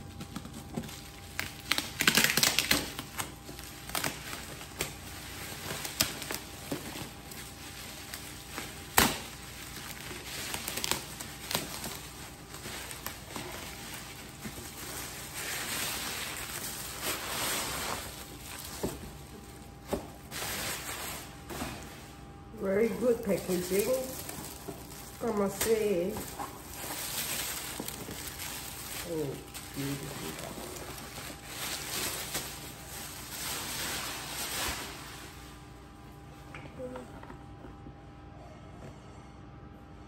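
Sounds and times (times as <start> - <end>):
bubble wrap clicks: 0.0 - 17.3
bubble wrap rustling and crinkling: 0.0 - 37.0.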